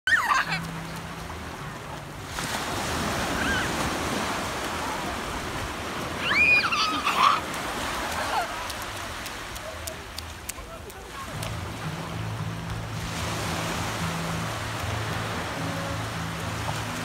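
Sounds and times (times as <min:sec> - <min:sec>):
young child squealing: 0:00.1 - 0:00.6, 0:03.3 - 0:03.8, 0:06.2 - 0:07.5
small waves breaking on beach: 0:00.1 - 0:17.0.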